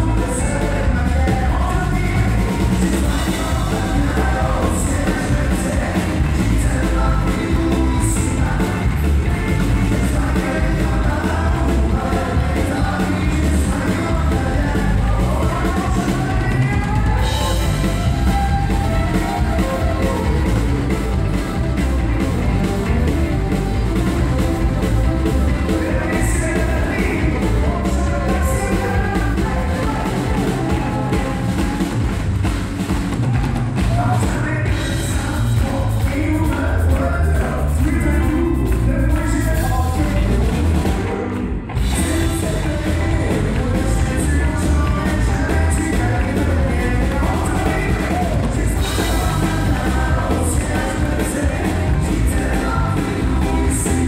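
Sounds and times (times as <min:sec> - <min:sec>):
man singing: 0:00.0 - 0:32.2, 0:33.7 - 0:54.0
country band playing: 0:00.0 - 0:54.0
drum kit steady beat: 0:00.0 - 0:54.0
electric and acoustic guitars: 0:00.0 - 0:54.0
fiddle: 0:16.5 - 0:32.1.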